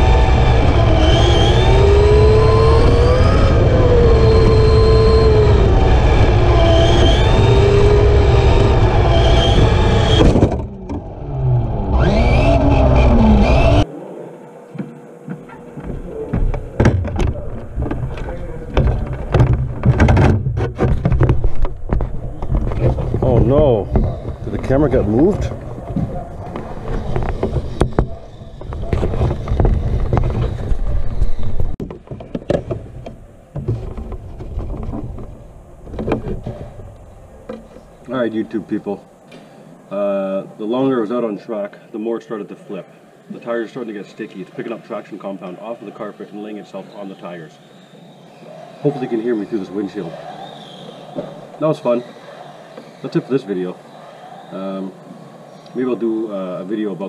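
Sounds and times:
electric motor whining: 0:00.0 - 0:20.2
clicks and knocks on plastic: 0:14.8 - 0:24.7, 0:31.8 - 0:35.3.

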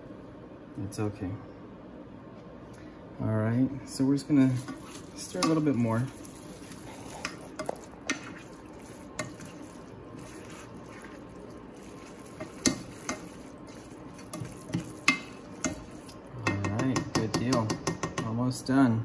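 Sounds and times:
noodles stirred in saucepan: 0:04.2 - 0:17.8
utensil knocking against pot: 0:05.4 - 0:05.7, 0:12.4 - 0:13.4, 0:14.2 - 0:18.3.

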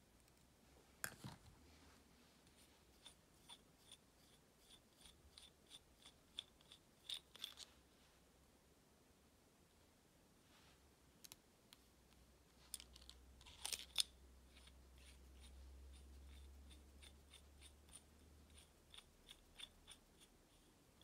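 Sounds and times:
light evenly spaced ticks: 0:14.5 - 0:21.0.

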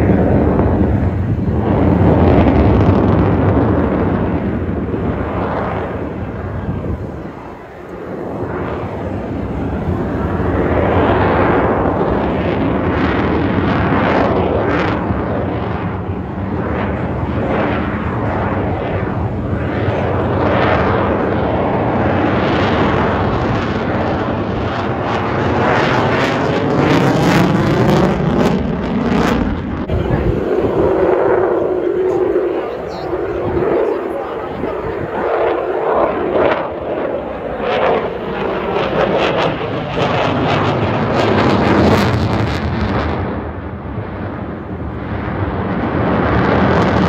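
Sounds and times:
aircraft engine flying past: 0:00.0 - 0:47.0
whooshing swirling tone: 0:22.8 - 0:40.9.

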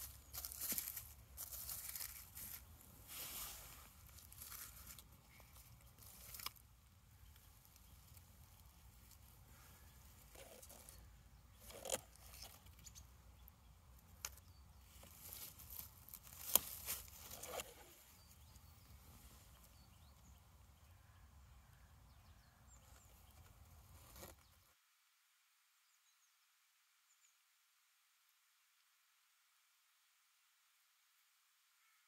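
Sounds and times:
stick rustling through dead leaves: 0:00.0 - 0:12.9, 0:14.2 - 0:18.2
faint outdoor hum: 0:00.0 - 0:32.0.

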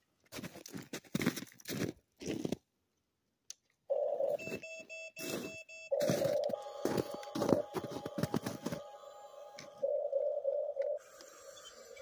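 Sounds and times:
tracks crunching in snow: 0:00.3 - 0:02.6, 0:05.2 - 0:09.0
high electronic tones: 0:03.9 - 0:12.0
small electric motors whining: 0:06.1 - 0:10.0, 0:10.8 - 0:12.0.

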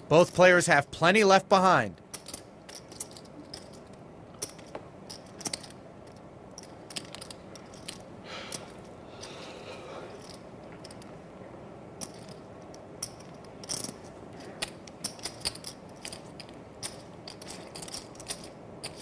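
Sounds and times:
poker chips clicking: 0:02.1 - 0:09.5, 0:10.1 - 0:11.1, 0:12.0 - 0:19.0
low room hush: 0:05.6 - 0:19.0.

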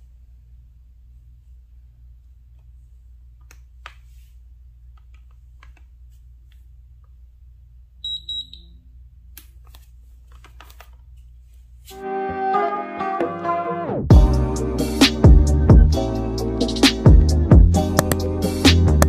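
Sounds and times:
bathroom scale high beeps: 0:08.0 - 0:08.8.

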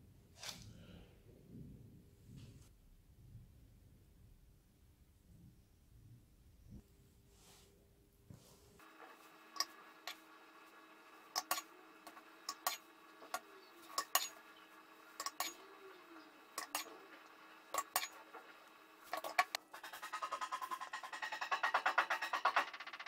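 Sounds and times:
faint steady hum: 0:00.0 - 0:19.8
kitchenware clinking: 0:12.5 - 0:14.6, 0:15.2 - 0:15.8, 0:16.6 - 0:17.0, 0:17.7 - 0:18.3.

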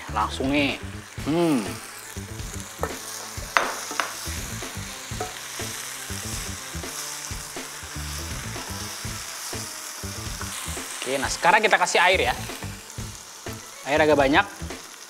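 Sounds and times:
food sizzling in oil: 0:00.0 - 0:15.0
spatula scraping and knocking on pan: 0:02.8 - 0:04.4, 0:05.1 - 0:05.8.

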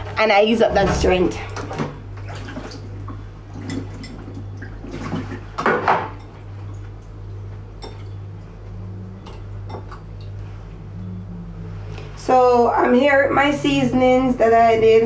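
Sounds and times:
steady low hum: 0:00.0 - 0:15.0
dishes and utensils clinking: 0:07.4 - 0:08.3, 0:09.2 - 0:10.4.

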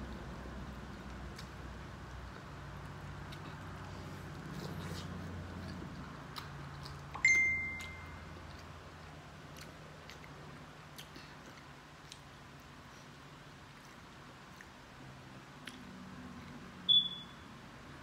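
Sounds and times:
chewing and wet mouth clicks: 0:00.8 - 0:12.8, 0:13.7 - 0:14.9, 0:15.5 - 0:16.6
brief high beep: 0:07.2 - 0:08.2, 0:16.9 - 0:17.4.

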